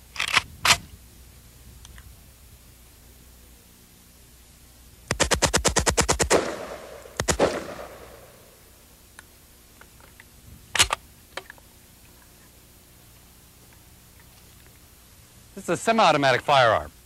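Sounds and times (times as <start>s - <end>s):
automatic rifle gunfire: 5.1s - 8.6s.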